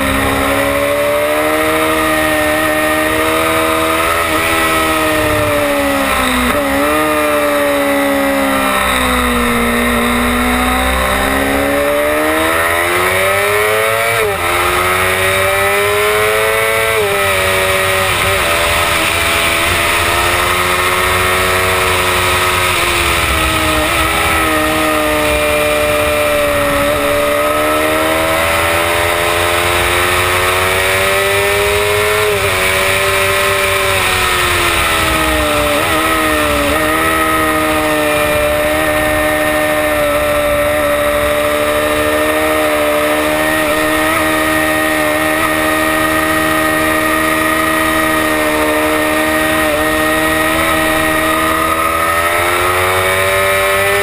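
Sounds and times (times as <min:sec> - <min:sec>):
motorcycle engine revving: 0:00.0 - 0:54.0
wind rush: 0:17.6 - 0:28.8.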